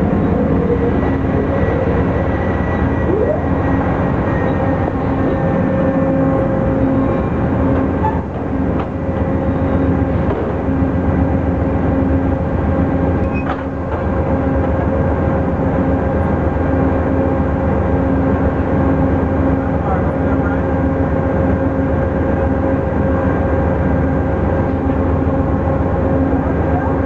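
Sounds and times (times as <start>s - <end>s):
low cycling tone: 0.0s - 7.6s
train mechanical hum: 0.0s - 27.0s.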